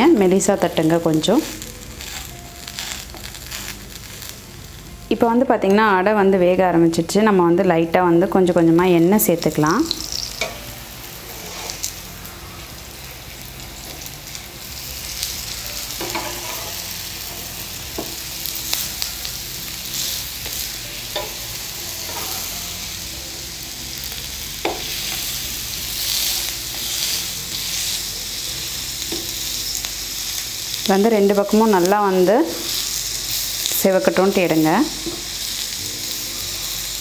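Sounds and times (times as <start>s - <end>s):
flatbreads sizzling in oil: 0.0s - 5.1s, 8.4s - 37.0s
metal spatula scraping griddle: 1.4s - 4.3s, 10.0s - 12.8s, 15.1s - 17.2s, 18.5s - 23.0s.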